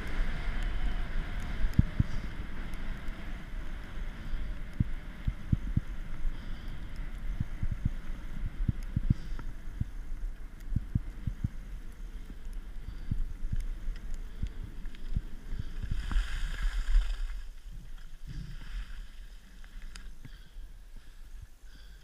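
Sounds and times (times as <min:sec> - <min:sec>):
wind rumbling on microphone: 0:00.0 - 0:22.0
skis sliding over snow: 0:13.7 - 0:20.2.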